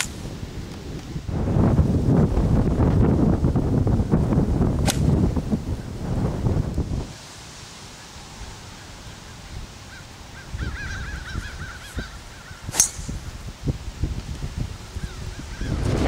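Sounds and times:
golf club striking ball: 0.0s - 0.2s, 4.8s - 5.4s, 12.7s - 13.4s
faint bird calls: 7.9s - 13.3s, 14.8s - 15.9s.

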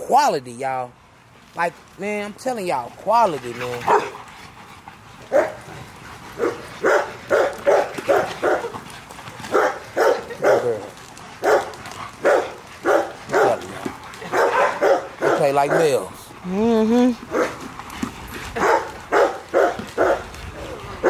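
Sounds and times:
dogs barking at play: 1.2s - 21.0s.

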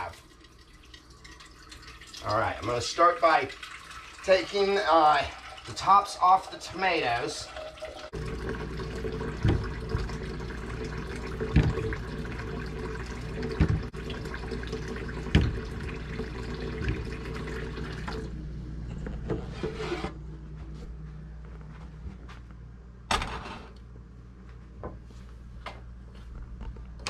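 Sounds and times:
faucet running into a sink: 0.0s - 18.3s.

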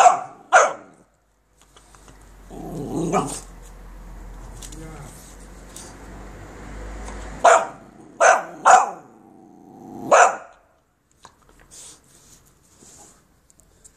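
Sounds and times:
puppy barking: 0.0s - 1.1s, 3.0s - 3.5s, 7.4s - 9.2s, 10.0s - 10.7s.

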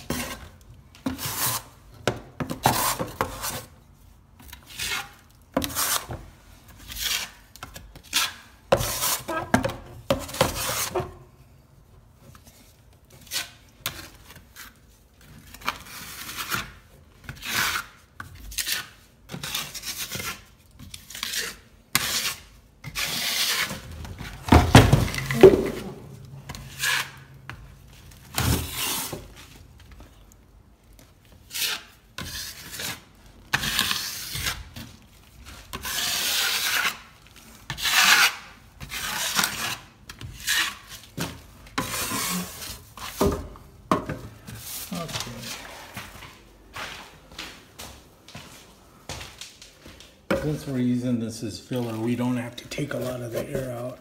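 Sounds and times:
metal tool scraping plaster: 0.0s - 1.8s, 4.4s - 11.3s, 15.6s - 24.4s, 26.5s - 27.4s, 28.4s - 29.3s, 31.4s - 43.2s.

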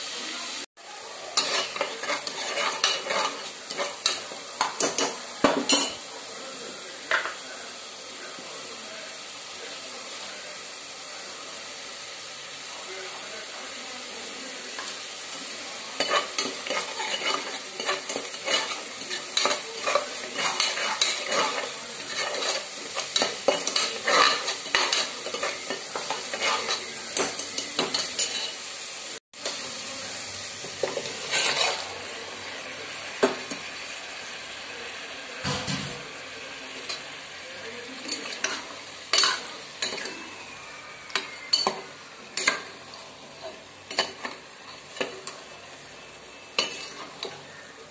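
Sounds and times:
gravy sizzling: 0.0s - 47.9s
spoon scraping metal pot: 1.4s - 5.1s, 16.0s - 28.6s, 31.0s - 31.8s, 46.6s - 47.4s.

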